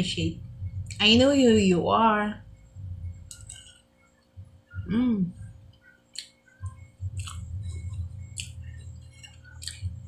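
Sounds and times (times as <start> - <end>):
chewing with wet mouth clicks: 3.2 - 4.3, 5.7 - 10.0
person humming mmm: 4.7 - 5.6.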